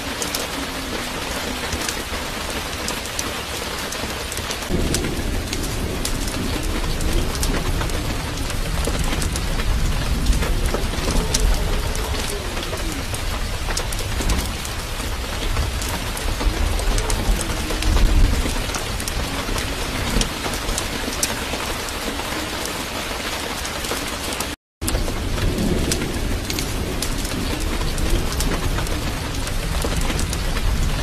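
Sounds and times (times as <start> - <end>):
crackles: 0.0 - 31.0
steady rain: 0.0 - 31.0
low rumbles: 4.2 - 22.6.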